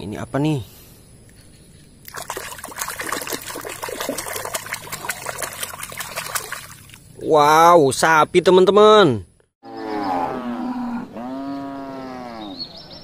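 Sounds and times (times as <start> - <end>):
water trickling and splashing: 2.0 - 7.2.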